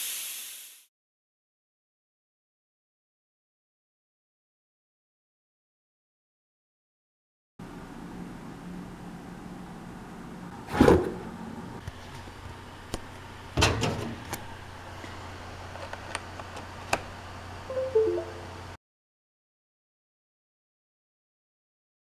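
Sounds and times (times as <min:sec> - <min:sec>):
descending three-note electronic chime: 0:17.7 - 0:18.7.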